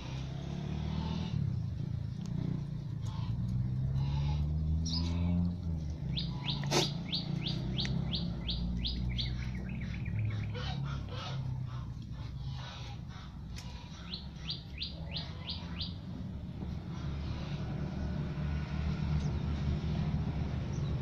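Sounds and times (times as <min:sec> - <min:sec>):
songbird calling and trilling: 0:04.8 - 0:05.2, 0:06.1 - 0:10.8, 0:13.9 - 0:16.0.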